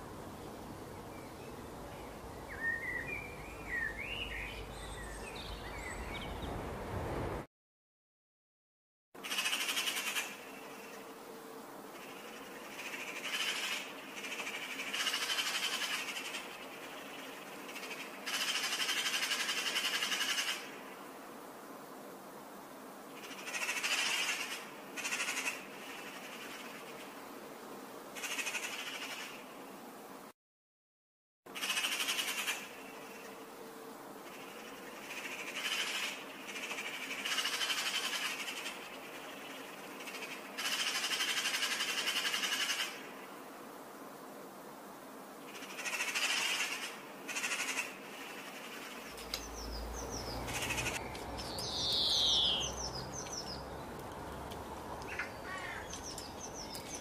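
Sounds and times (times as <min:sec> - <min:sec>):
magpies chattering: 0:45.6 - 0:57.0.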